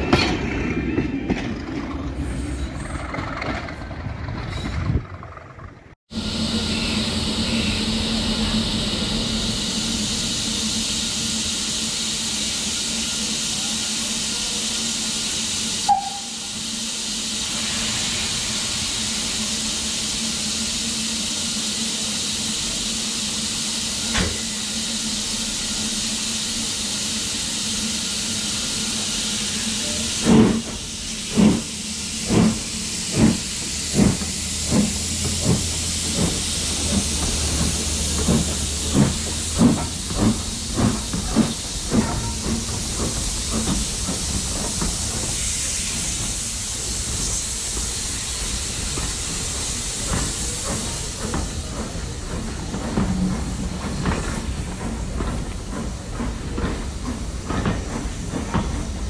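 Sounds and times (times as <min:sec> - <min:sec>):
steam locomotive hissing: 0:06.1 - 0:59.0
locomotive exhaust beats: 0:18.4 - 0:59.0.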